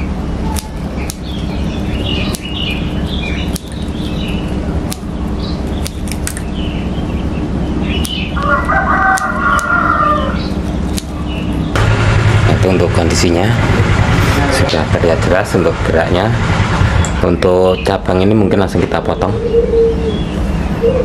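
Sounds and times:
chickens calling: 0.0 - 11.8, 15.6 - 21.0
steady low hum: 0.0 - 21.0
sharp clicks: 0.5 - 1.4, 2.2 - 2.7, 3.4 - 5.1, 5.8 - 6.5, 9.1 - 9.8, 10.6 - 11.2
rooster crowing: 8.4 - 10.5.

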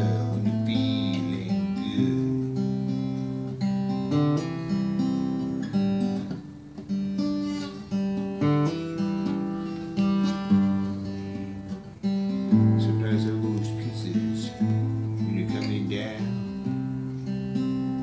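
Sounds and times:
acoustic guitar chords: 0.0 - 18.0.

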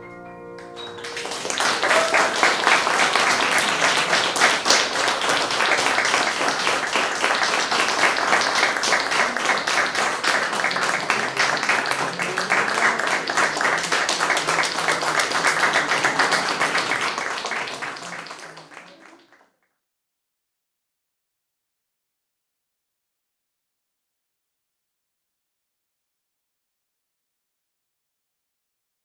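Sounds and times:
audience applauding: 0.6 - 19.5.

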